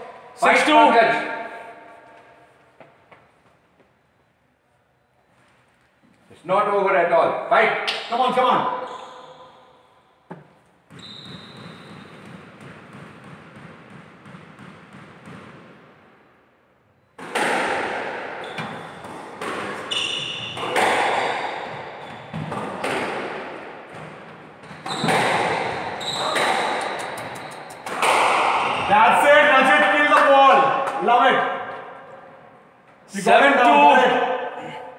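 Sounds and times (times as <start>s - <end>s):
shoes squeaking on wooden floor: 10.3s - 12.7s, 18.4s - 23.1s, 23.9s - 29.0s
squash ball hitting rackets and walls: 10.3s - 33.1s.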